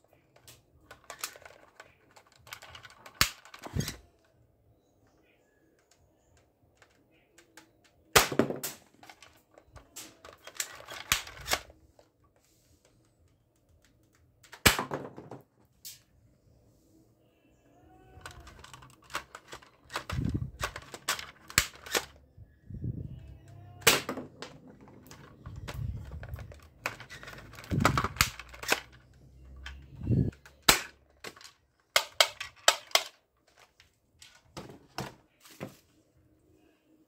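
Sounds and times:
toy gun plastic clacks and snaps: 0:00.3 - 0:04.0, 0:05.8 - 0:11.7, 0:18.2 - 0:22.2, 0:23.8 - 0:34.5.

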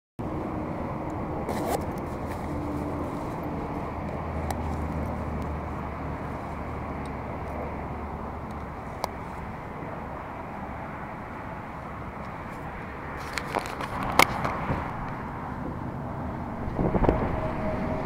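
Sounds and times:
low outdoor rumble: 0:00.2 - 0:18.0.

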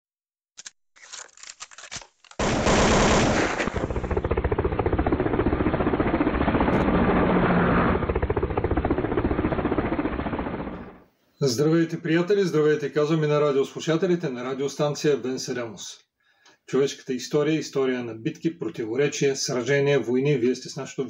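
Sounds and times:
machine-gun fire: 0:02.4 - 0:11.0.

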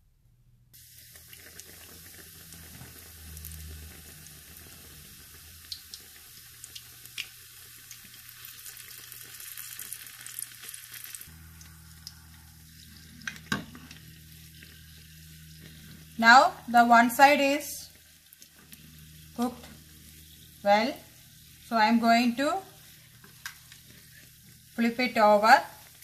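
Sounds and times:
food sizzling in hot oil: 0:00.8 - 0:26.0.

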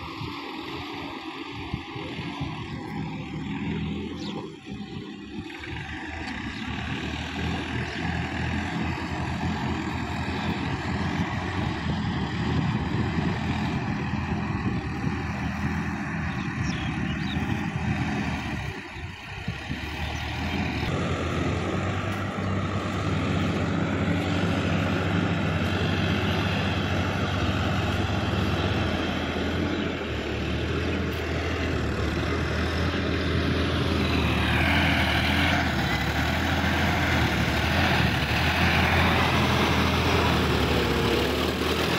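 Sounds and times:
tractor diesel engine running: 0:00.0 - 0:41.9.

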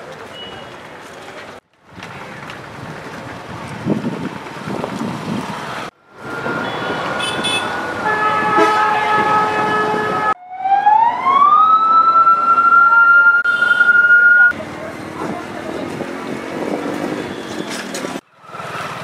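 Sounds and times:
wind noise on microphone: 0:01.9 - 0:07.5, 0:15.2 - 0:17.7
siren: 0:06.1 - 0:07.2, 0:08.2 - 0:14.5.

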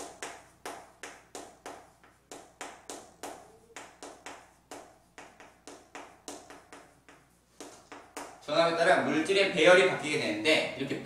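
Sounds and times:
chalk tapping on chalkboard: 0:00.0 - 0:08.5.

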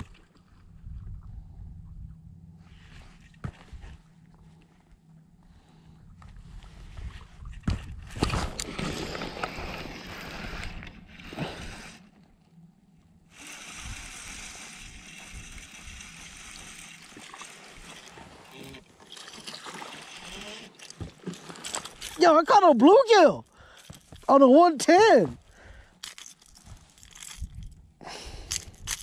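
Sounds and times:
water lapping against kayak hull: 0:13.8 - 0:22.2.

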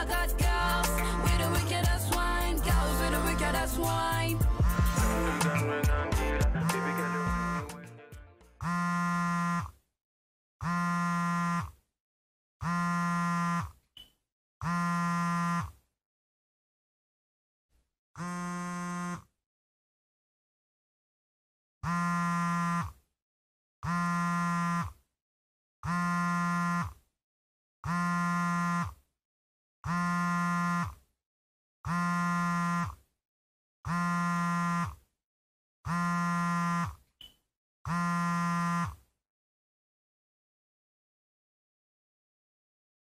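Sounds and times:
phone buzzing: 0:06.6 - 0:07.9, 0:08.6 - 0:09.8, 0:10.6 - 0:11.7, 0:12.6 - 0:15.8, 0:18.2 - 0:19.3, 0:21.8 - 0:23.0, 0:23.8 - 0:25.0, 0:25.8 - 0:27.0, 0:27.8 - 0:29.0, 0:29.8 - 0:31.0, 0:31.9 - 0:33.0, 0:33.9 - 0:35.0, 0:35.9 - 0:39.0.

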